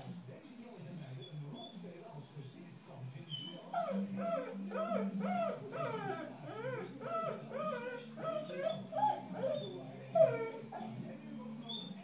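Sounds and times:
dog whimpering: 3.2 - 12.0.

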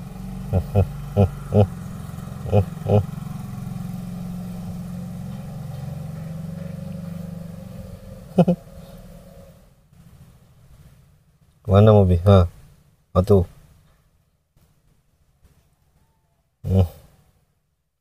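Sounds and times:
vehicle engine running: 0.0 - 12.8.

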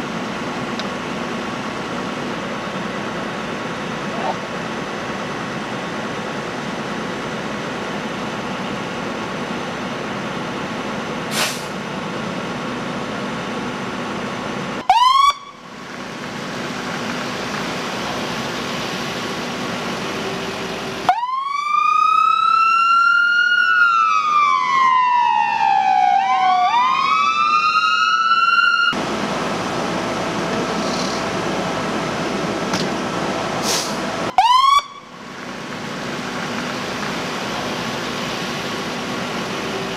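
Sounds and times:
ambulance siren wailing: 14.8 - 15.6, 21.1 - 29.0, 34.3 - 35.2
siren whoop: 14.9 - 15.6, 21.1 - 29.0, 34.4 - 35.1
engine idling: 15.5 - 21.1, 29.0 - 39.9.

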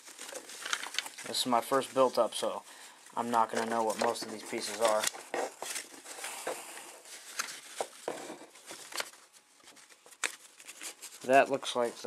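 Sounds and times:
rustling in cardboard box: 3.2 - 11.9.

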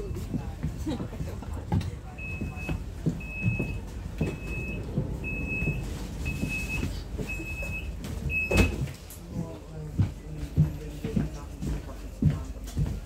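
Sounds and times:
footsteps thumping: 0.2 - 9.0, 9.9 - 13.0
high door warning beeps: 2.2 - 8.9.

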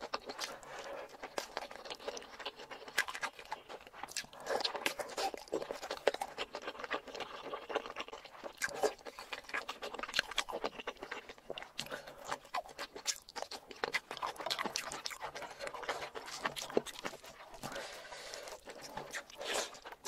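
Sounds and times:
chewing crunchy cartilage: 0.0 - 20.0.

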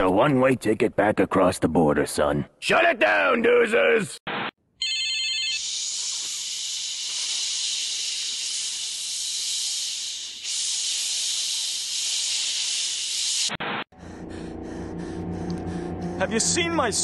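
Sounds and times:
creature hissing: 5.6 - 13.6.

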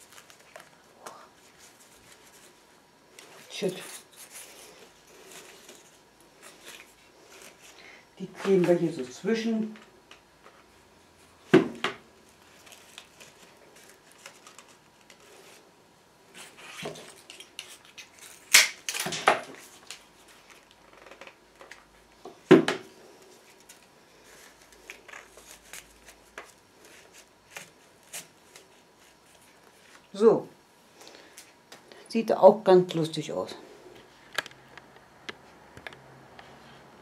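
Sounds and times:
rustling: 0.0 - 11.5, 12.1 - 30.2.

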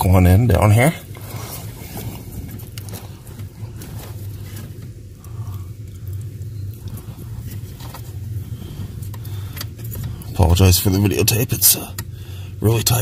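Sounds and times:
low steady hum: 0.0 - 13.0
plastic rubbing: 1.0 - 5.3, 5.9 - 11.3.

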